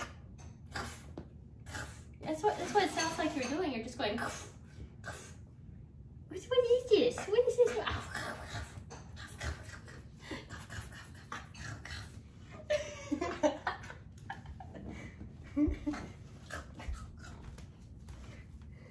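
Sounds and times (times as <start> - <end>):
woman laughing: 12.6 - 16.2.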